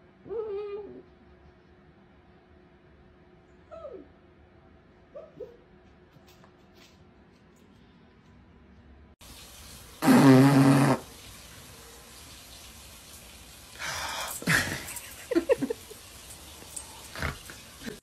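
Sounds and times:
buzzing raspberry on fur: 10.0s - 11.1s
vocal sounds: 10.0s - 11.1s.

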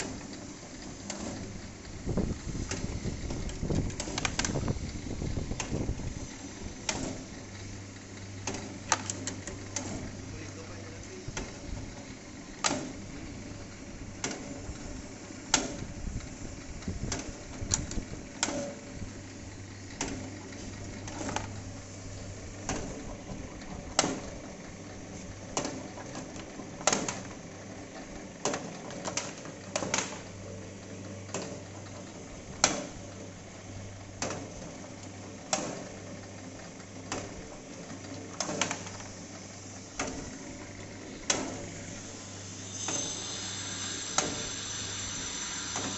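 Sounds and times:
electric motor humming: 41.7s - 45.9s.

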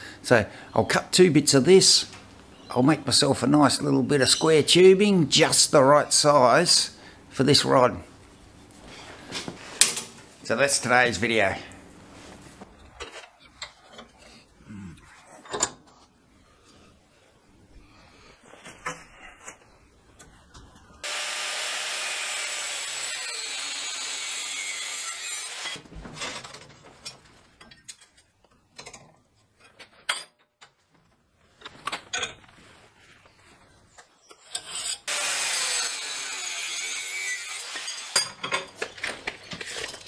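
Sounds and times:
angle grinder cutting steel: 21.0s - 25.8s, 34.8s - 38.3s.

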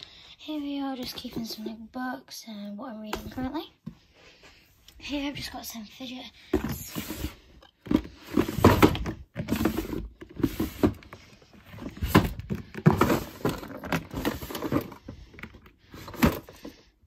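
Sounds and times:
plastic drawers opening and shutting: 6.5s - 16.9s
plastic toys rattling: 7.8s - 16.8s.

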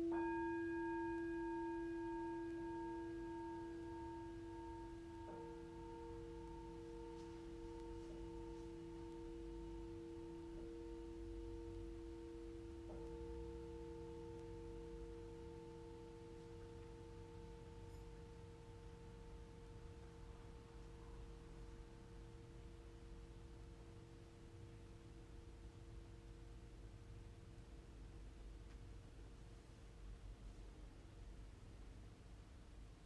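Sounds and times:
soft singing bowl strike: 0.0s - 19.0s
singing bowls ringing: 0.0s - 22.7s.

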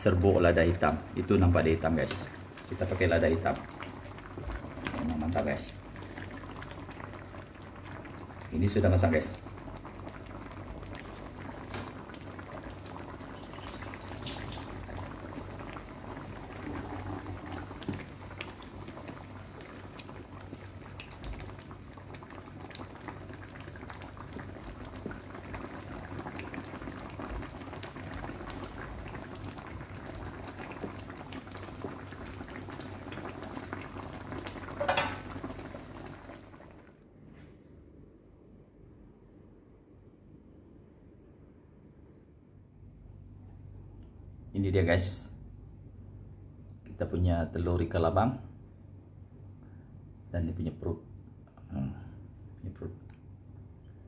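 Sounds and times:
soup bubbling in a wok: 0.1s - 37.0s.

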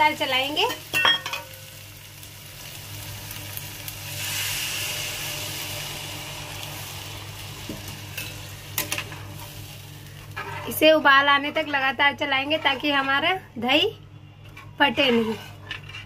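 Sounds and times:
liquid sizzling in hot pan: 0.0s - 11.9s.

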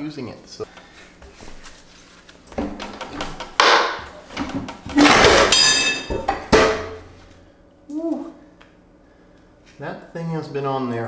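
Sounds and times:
heavy metal clunks: 2.6s - 7.2s.

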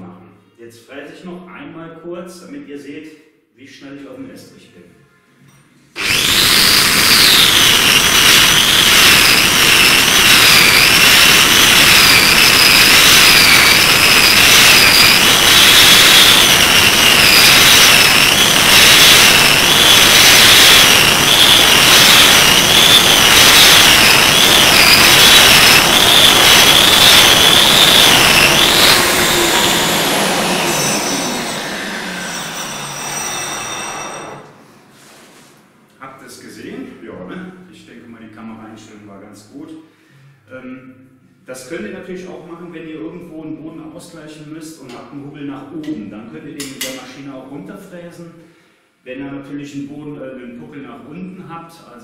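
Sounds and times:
concrete milling machine whine: 6.0s - 34.6s.

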